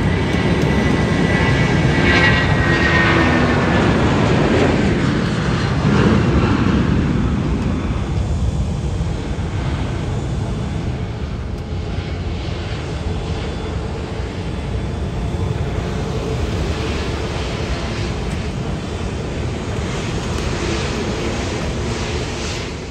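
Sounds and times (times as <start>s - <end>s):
jet engines roaring at takeoff: 0.0s - 22.9s.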